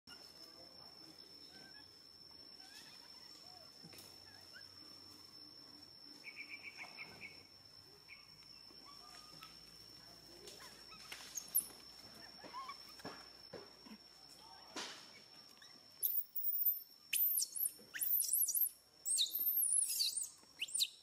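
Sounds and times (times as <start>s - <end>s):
quick chirps: 16.0s - 21.0s.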